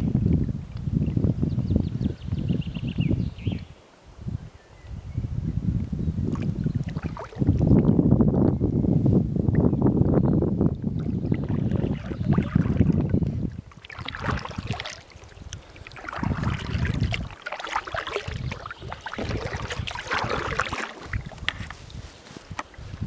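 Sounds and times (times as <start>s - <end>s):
wind rumble on microphone: 0.0s - 23.0s
paddle splashing in water: 6.3s - 7.6s, 10.7s - 22.8s.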